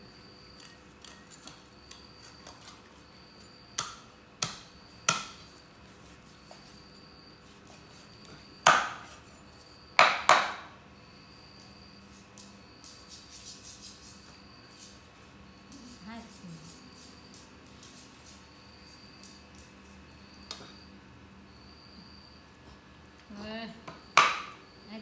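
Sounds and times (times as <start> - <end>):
cleaver chopping on wooden board: 3.8 - 5.4, 8.6 - 9.2, 10.0 - 10.7, 23.9 - 24.5.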